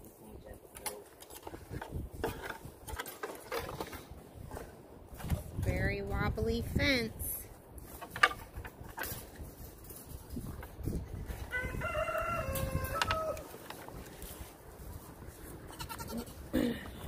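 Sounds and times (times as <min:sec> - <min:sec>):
rooster crowing: 0:11.5 - 0:13.5.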